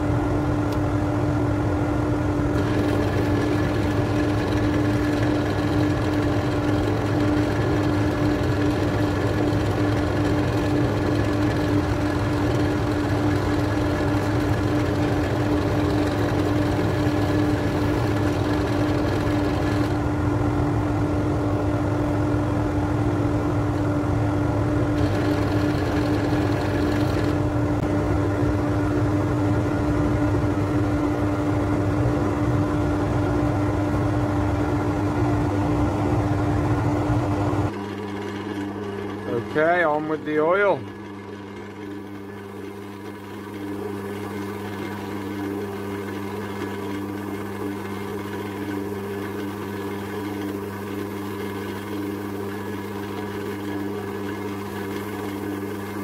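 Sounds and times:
lathe motor humming: 0:02.4 - 0:20.3, 0:24.5 - 0:28.2, 0:37.7 - 0:56.0.

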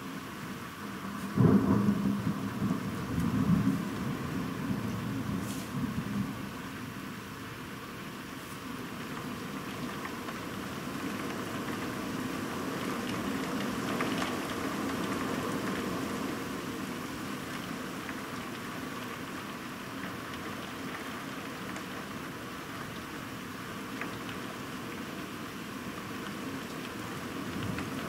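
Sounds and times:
heavy rain falling: 0:00.0 - 0:28.0
raindrops ticking close by: 0:08.8 - 0:28.0.

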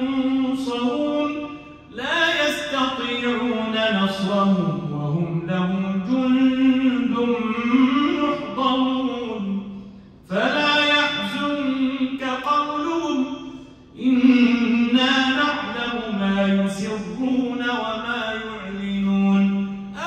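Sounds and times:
man chanting melodically: 0:00.0 - 0:20.0.

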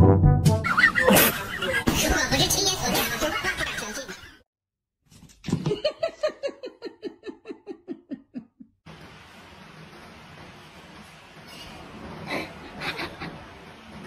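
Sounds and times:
person laughing: 0:00.6 - 0:02.0, 0:05.7 - 0:08.8, 0:12.3 - 0:13.4.

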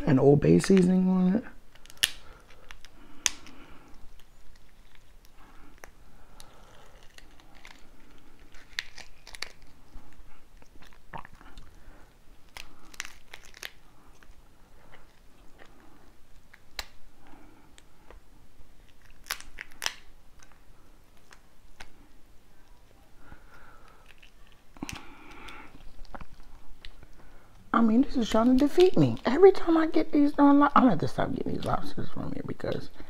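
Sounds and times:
lobster shell cracking: 0:01.6 - 0:11.8, 0:12.4 - 0:17.0, 0:18.8 - 0:20.6, 0:23.6 - 0:27.2.

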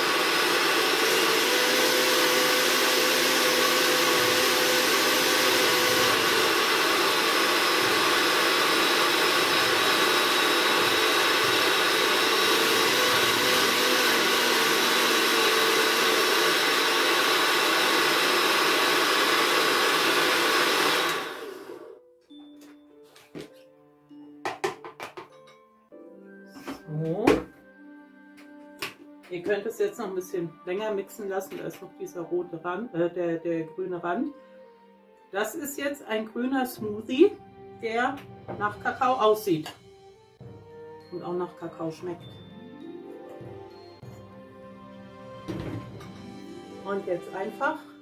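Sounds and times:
blender motor running: 0:00.0 - 0:22.0.

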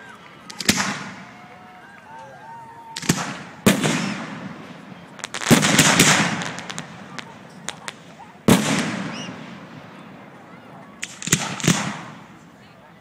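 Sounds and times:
firework pops and crackles: 0:00.3 - 0:01.3, 0:02.9 - 0:09.6, 0:11.0 - 0:12.3
firework shells bursting: 0:03.0 - 0:09.8, 0:11.0 - 0:12.3.

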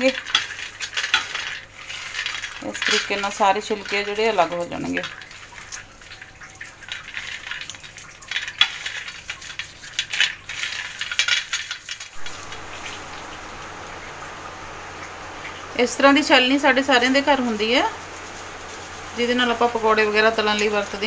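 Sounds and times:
nuts rustling on metal plate: 0:00.0 - 0:05.7, 0:06.9 - 0:13.6
faint steady hiss: 0:11.9 - 0:21.0.

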